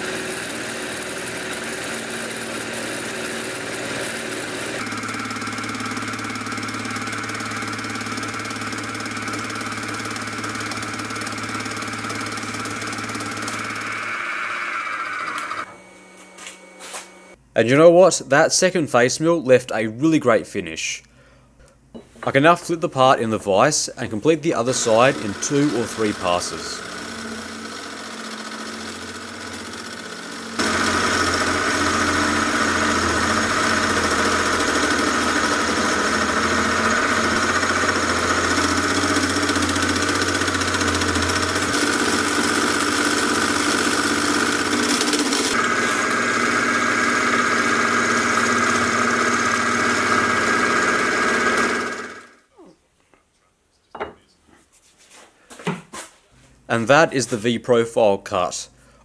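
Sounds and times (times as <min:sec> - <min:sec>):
face mill cutting steel: 0:00.0 - 0:15.7, 0:24.5 - 0:52.3
milling machine spindle running: 0:00.0 - 0:17.4, 0:24.6 - 0:52.4.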